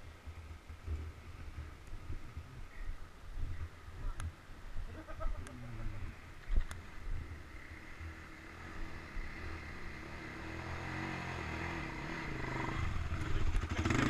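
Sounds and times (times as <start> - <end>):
quad bike engine revving: 7.6 - 14.0.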